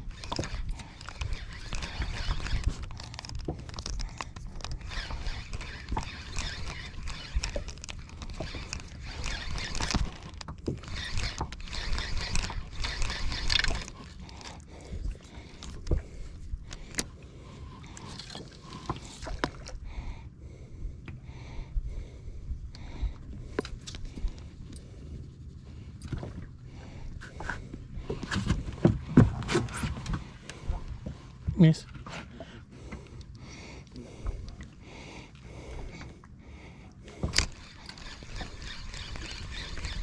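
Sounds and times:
fishing reel clicks and scrapes: 0.0s - 14.6s, 37.2s - 40.0s.

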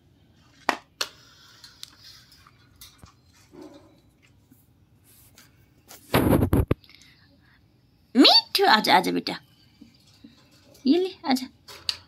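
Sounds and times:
parakeets rustling in a wire cage: 1.2s - 6.7s, 9.7s - 12.0s.

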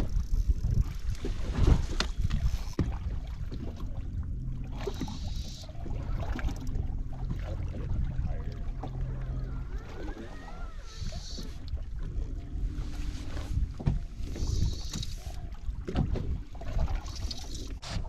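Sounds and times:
wind buffeting microphone: 0.0s - 17.8s
waves slapping boat hull: 0.0s - 18.0s
faint steady hum: 2.9s - 15.8s.

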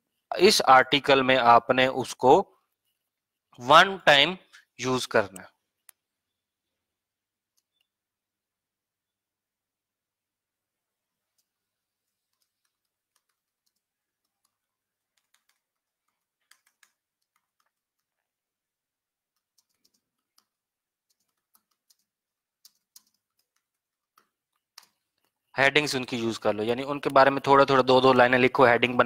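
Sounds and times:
computer keyboard typing: 11.2s - 18.5s, 19.1s - 25.4s.

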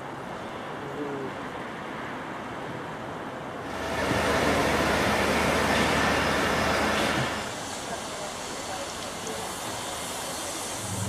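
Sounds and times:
diesel locomotive idling: 3.6s - 11.0s.

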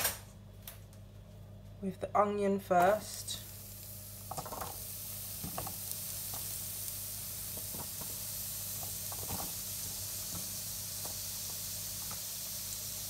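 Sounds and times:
steady low hum: 0.2s - 13.0s
onion sizzling in a frying pan: 2.7s - 13.0s.

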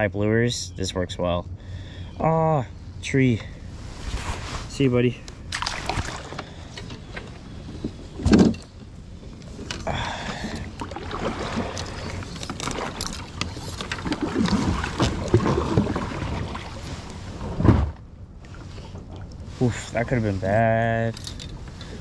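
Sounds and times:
kayak gear knocking and rustling: 5.5s - 16.5s, 21.0s - 22.0s.

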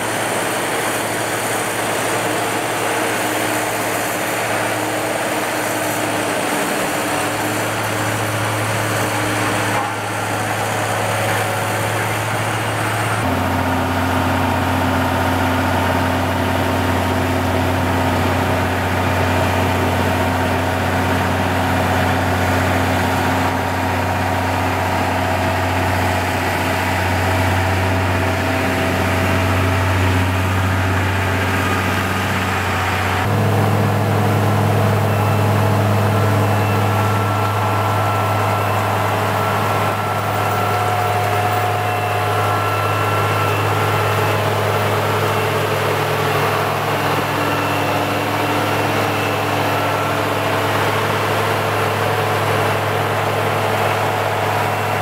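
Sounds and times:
grader diesel engine running: 0.0s - 55.0s
road roller diesel engine: 0.0s - 55.0s.

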